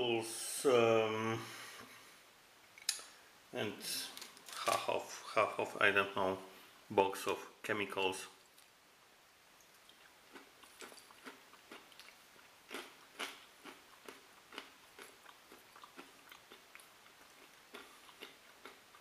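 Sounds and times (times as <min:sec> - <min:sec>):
person chewing crunchy snack: 0:09.8 - 0:19.0.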